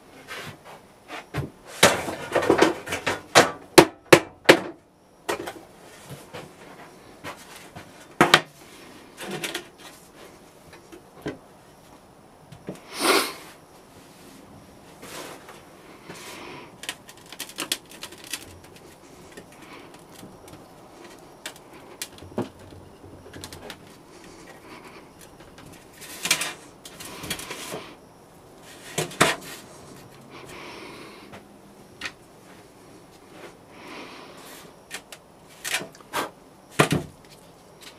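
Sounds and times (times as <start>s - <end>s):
knocks and scrapes of handled tools: 15.0s - 27.9s, 28.6s - 30.2s.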